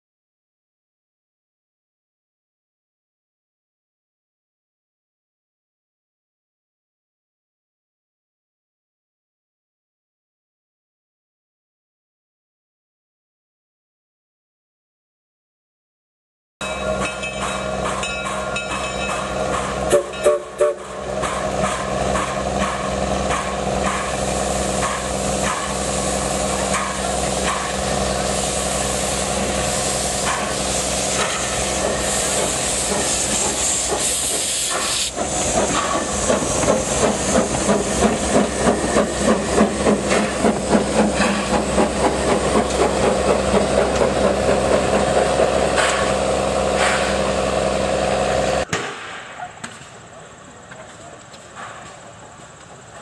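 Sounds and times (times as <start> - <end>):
steam locomotive hissing: 16.6 - 48.7
locomotive exhaust chuffing: 17.0 - 48.7.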